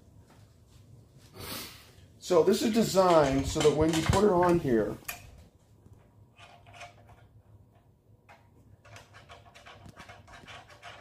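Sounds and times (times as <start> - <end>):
faint rubs and knocks: 5.4 - 11.0.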